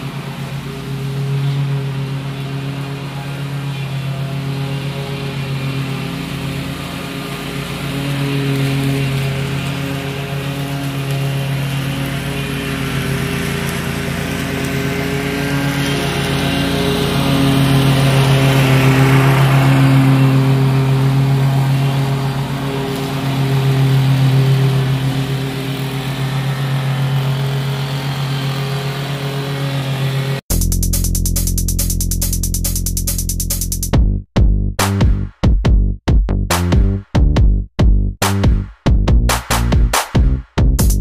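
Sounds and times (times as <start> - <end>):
lawn mower running: 0.0 - 34.0, 36.5 - 41.0.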